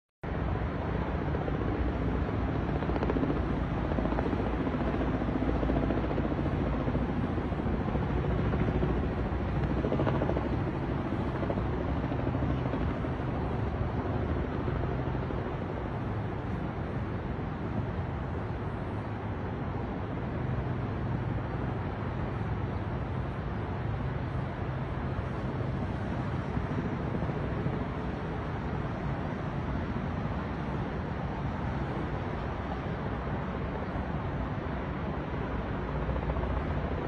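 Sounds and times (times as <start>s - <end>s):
helicopter engine drone: 0.3s - 37.0s
helicopter rotor beating: 0.5s - 37.0s.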